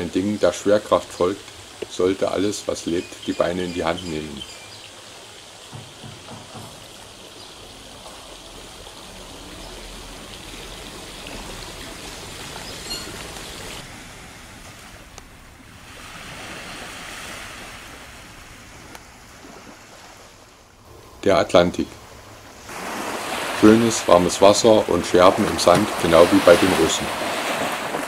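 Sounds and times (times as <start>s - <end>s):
small waves washing onto sand: 0.0s - 21.0s, 21.6s - 28.0s.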